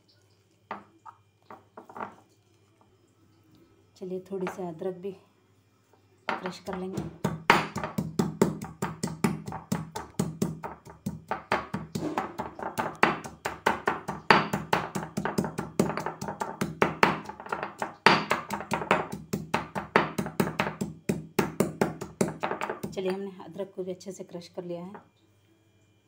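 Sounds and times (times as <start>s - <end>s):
pestle pounding in mortar: 6.4s - 23.2s.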